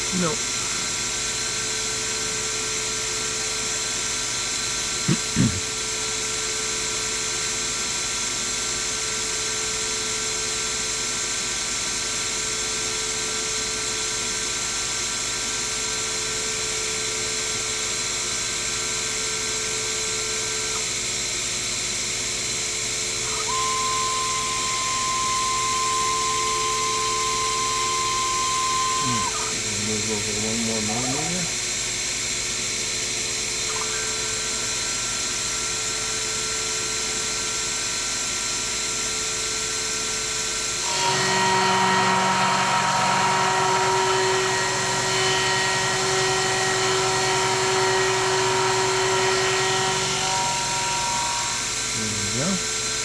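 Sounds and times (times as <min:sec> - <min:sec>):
milling machine motor whine: 0:00.0 - 0:53.0
steady higher tone: 0:23.2 - 0:31.6.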